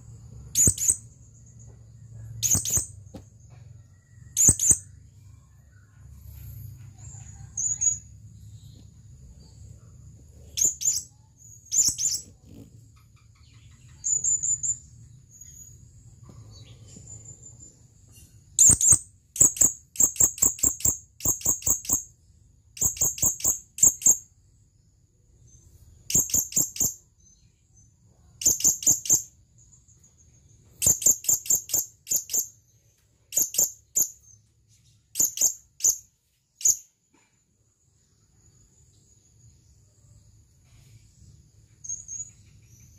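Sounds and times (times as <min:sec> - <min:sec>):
parrot high-pitched chirps: 0:00.6 - 0:01.1, 0:02.4 - 0:03.0, 0:10.6 - 0:14.8, 0:18.6 - 0:22.1, 0:22.8 - 0:24.3, 0:26.1 - 0:27.0, 0:28.4 - 0:29.4, 0:30.8 - 0:32.6, 0:35.1 - 0:36.9.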